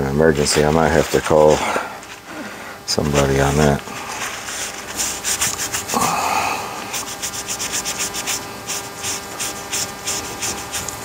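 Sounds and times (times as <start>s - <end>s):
rapid rubbing on fabric: 0.2s - 11.0s.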